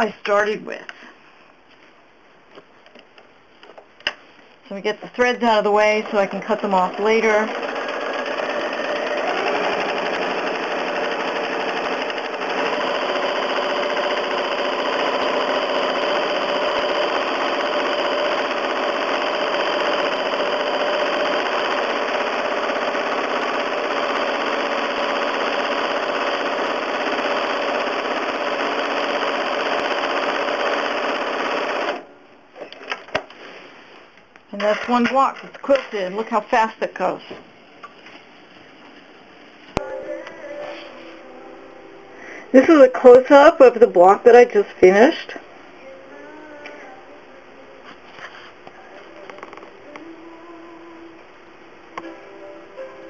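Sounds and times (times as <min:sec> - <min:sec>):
sewing machine running: 0:05.9 - 0:32.0.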